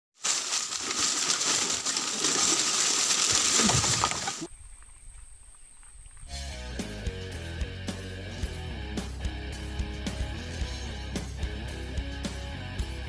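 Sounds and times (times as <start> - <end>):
guitar intro music: 6.3 - 13.0.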